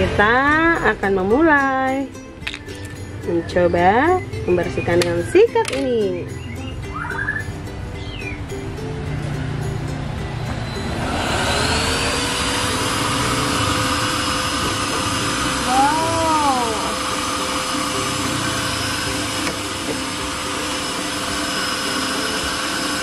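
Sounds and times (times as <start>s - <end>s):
rising-and-falling tone: 6.3s - 23.0s
vacuum motor whine: 10.5s - 23.0s.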